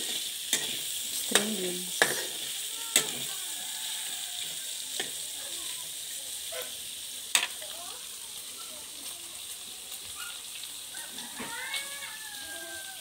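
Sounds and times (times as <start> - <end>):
meat sizzling in a wok: 0.0 - 13.0
metal spatula clinking on pan: 0.5 - 2.3.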